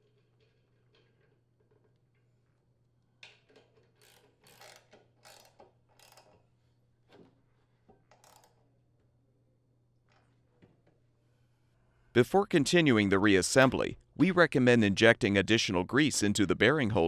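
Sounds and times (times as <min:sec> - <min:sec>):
ratchet wrench clicking: 0:03.7 - 0:06.4, 0:08.1 - 0:08.6.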